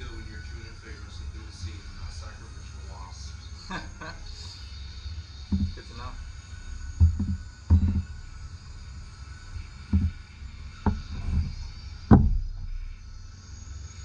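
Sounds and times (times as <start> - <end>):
faint steady hiss: 0.0 - 14.0
dull low thumps: 5.0 - 13.4.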